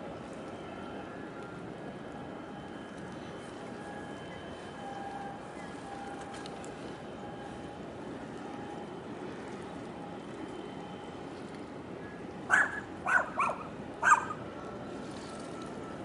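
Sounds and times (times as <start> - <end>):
dog barking: 12.5 - 14.4.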